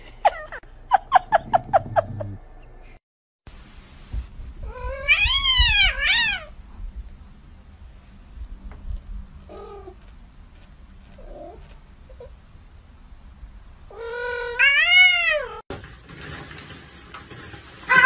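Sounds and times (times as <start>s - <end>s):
cat meowing: 4.6s - 6.5s, 13.9s - 15.6s.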